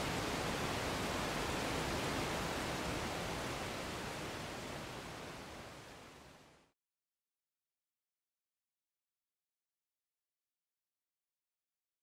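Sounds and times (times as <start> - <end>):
waterfall rushing: 0.0 - 6.0.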